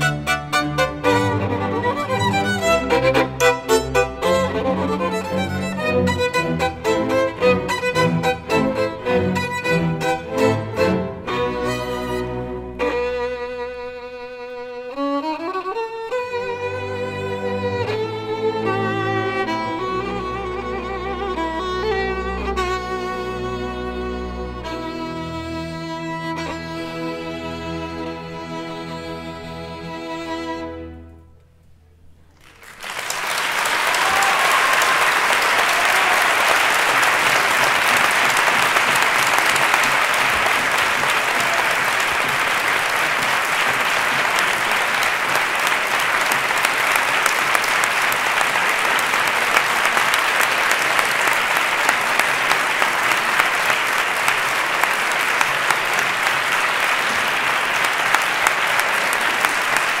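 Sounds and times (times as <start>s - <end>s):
audience applauding: 32.3s - 60.0s.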